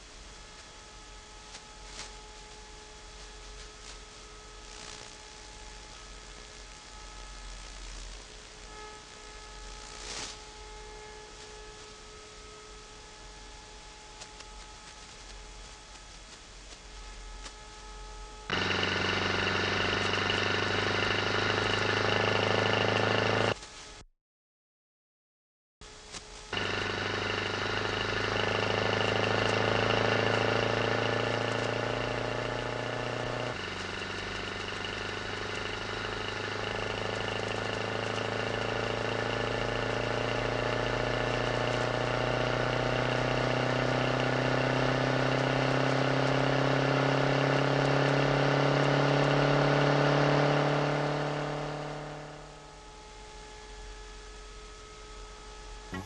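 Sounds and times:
vehicle engine humming: 0:18.4 - 0:23.6, 0:26.5 - 0:53.4.

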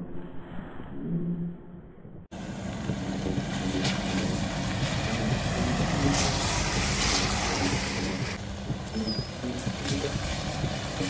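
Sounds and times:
vehicle engine rumbling: 0:01.6 - 0:11.0
road noise rushing: 0:02.3 - 0:11.0.

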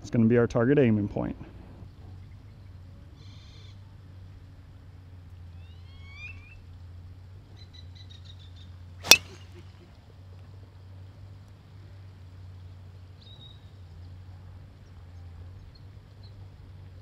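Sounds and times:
small birds chirping: 0:07.5 - 0:09.6
golf driver striking ball: 0:09.0 - 0:09.6.

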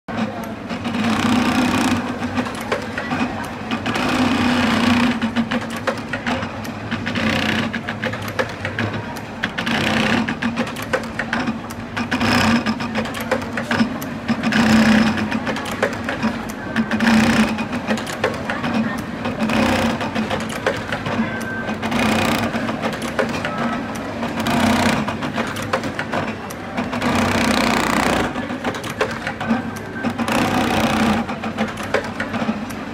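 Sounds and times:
sewing machine needle strokes: 0:14.4 - 0:23.4, 0:27.0 - 0:28.4.

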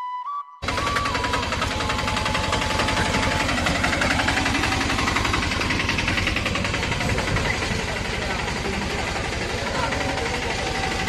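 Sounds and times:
auto-rickshaw engine chugging: 0:00.6 - 0:11.0.

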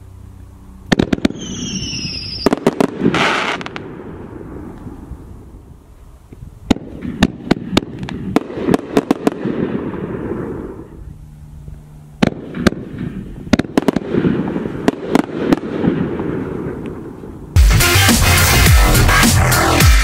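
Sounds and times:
firework pops and crackles: 0:00.9 - 0:03.9, 0:06.3 - 0:10.6, 0:12.2 - 0:17.2
loud firework bang: 0:00.9 - 0:04.5.

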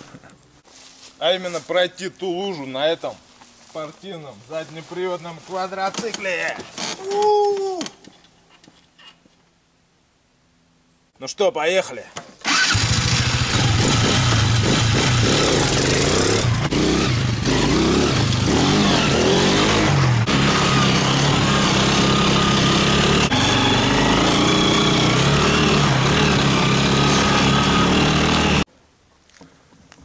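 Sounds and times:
quad bike engine revving: 0:12.4 - 0:28.7.

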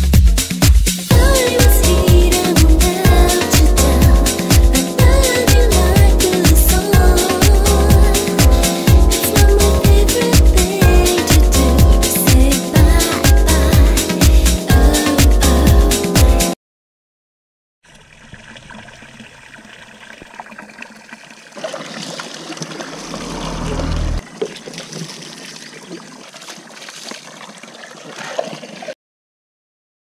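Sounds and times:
water trickling: 0:17.8 - 0:29.0
low rumble: 0:23.0 - 0:24.2.

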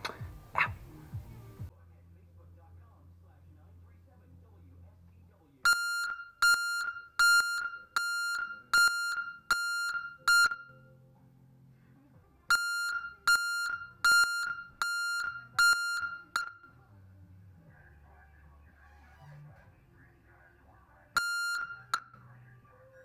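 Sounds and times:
truck backup alarm beeps: 0:05.7 - 0:10.9, 0:12.5 - 0:16.7, 0:21.2 - 0:22.1.

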